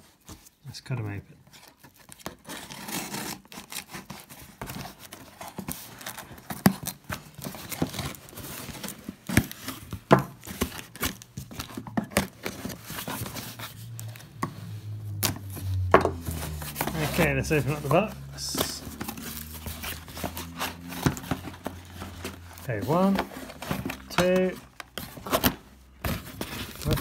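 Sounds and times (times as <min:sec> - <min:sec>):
knife cutting packing tape: 0:02.1 - 0:05.0
cardboard flaps handled: 0:03.2 - 0:27.0.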